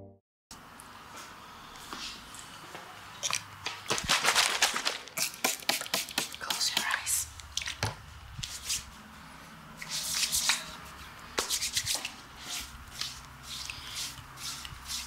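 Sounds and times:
hands rubbing and swishing: 8.4 - 9.0, 9.8 - 15.0.

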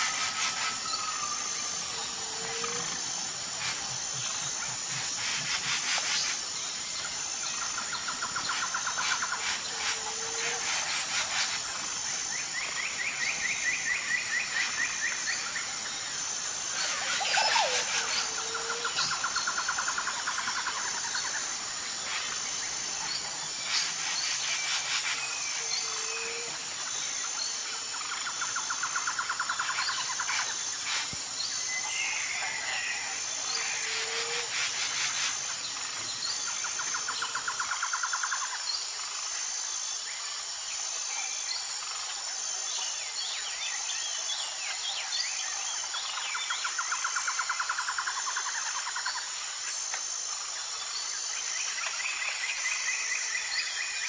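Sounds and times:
insect drone with pulsing chirp: 0.0 - 54.0
trilling bird calls: 16.7 - 19.5.

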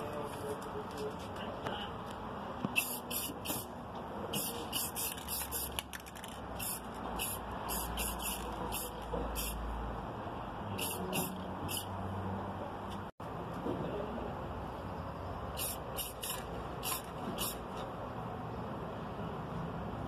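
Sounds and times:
spray paint can hissing in spurts: 2.7 - 3.7, 4.3 - 9.6, 10.7 - 11.9, 15.5 - 17.7.

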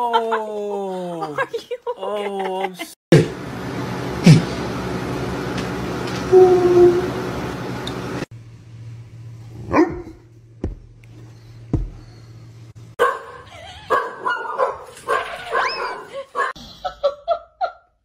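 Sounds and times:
dogs barking: 9.6 - 10.2, 13.0 - 16.6.

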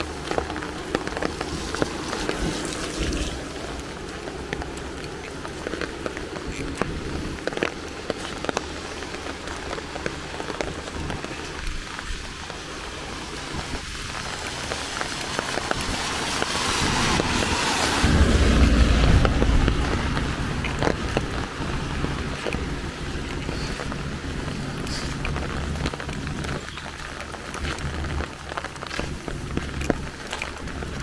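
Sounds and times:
steady rainfall: 0.0 - 31.0
rushing swell with deep rumble: 16.0 - 26.4.

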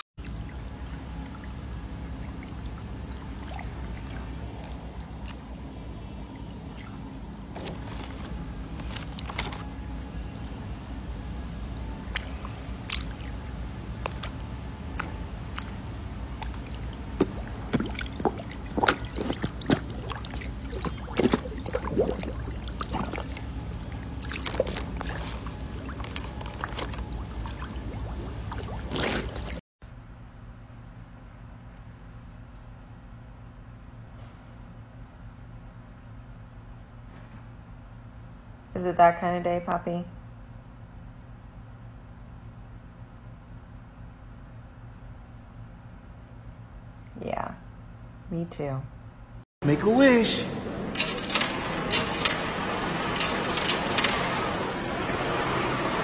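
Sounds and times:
steady low hum: 0.0 - 56.0
steady low rumble: 0.0 - 56.0
fish splashing and slurping: 0.2 - 8.5, 12.1 - 29.6
pond water sloshing: 0.2 - 9.5, 12.1 - 29.6.

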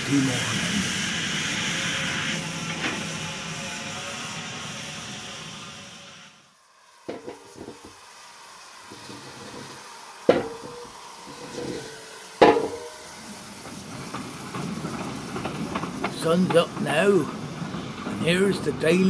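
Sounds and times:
loud metallic clanks: 10.3 - 13.0.

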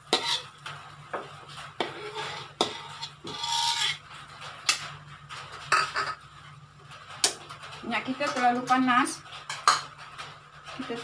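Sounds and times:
spatula scraping rasp: 0.0 - 0.5, 1.8 - 4.0.

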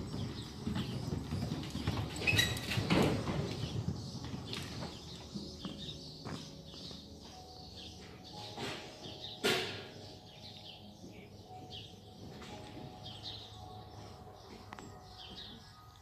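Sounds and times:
small birds chirping: 0.0 - 16.0
sharp loud knock: 9.4 - 9.9.

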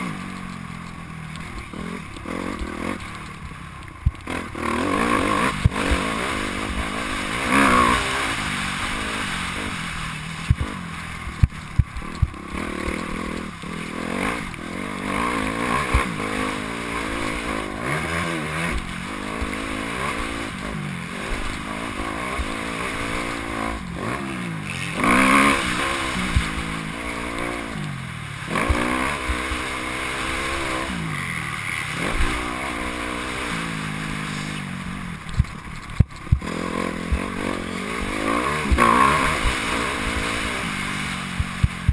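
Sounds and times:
dirt bike engine revving: 0.0 - 41.9.

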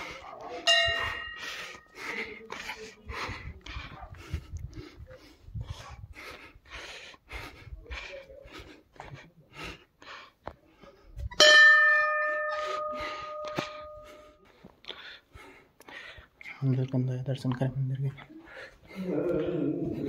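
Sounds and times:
hard breathing puffs: 0.0 - 11.3, 12.5 - 16.6, 18.2 - 20.0
temple bell ringing: 0.6 - 1.8, 11.4 - 14.4.

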